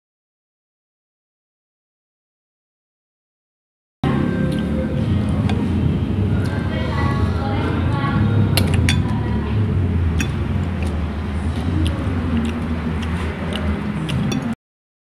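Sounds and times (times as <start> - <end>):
vehicle engine running: 4.0 - 14.6
man eating with fingers: 4.1 - 14.6.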